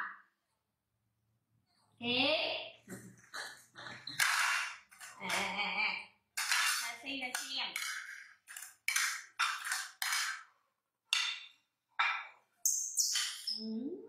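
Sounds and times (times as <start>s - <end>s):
plates scraping on tiled floor: 2.9s - 11.4s.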